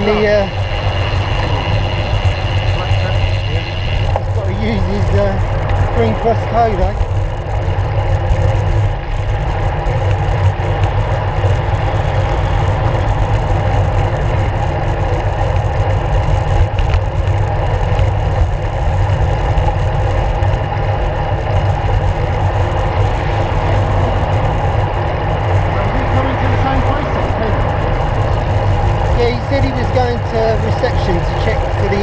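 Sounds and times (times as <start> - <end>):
bicycle tyre noise: 0.0 - 32.0
wind rumble: 0.0 - 32.0.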